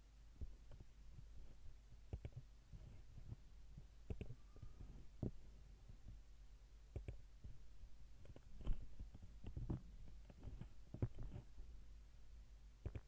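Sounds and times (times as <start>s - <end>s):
low steady hum: 0.0s - 13.0s
faint computer mouse clicks: 2.1s - 2.4s, 4.1s - 4.4s, 6.9s - 7.2s.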